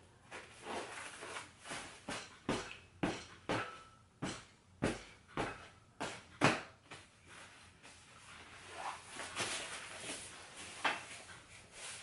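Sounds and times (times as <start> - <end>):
soft scuffs: 0.3 - 2.3, 6.8 - 12.0
fabric rustling: 7.2 - 12.0.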